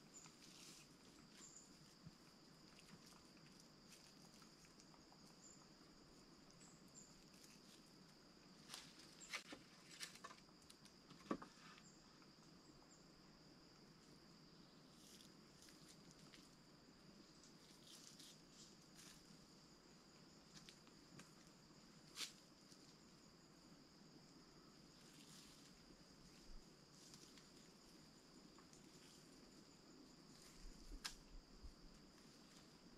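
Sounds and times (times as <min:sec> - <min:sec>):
faint high insect trill: 0:00.0 - 0:32.9.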